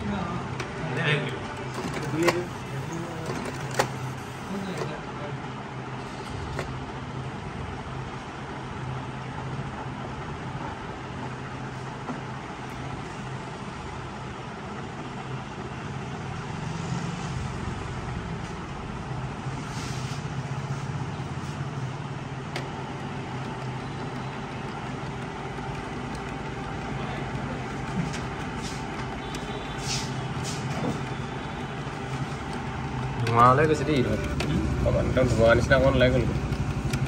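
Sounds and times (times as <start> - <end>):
printer motor humming: 0.0 - 37.0
printer click: 0.3 - 5.0, 6.3 - 6.8, 22.4 - 37.0.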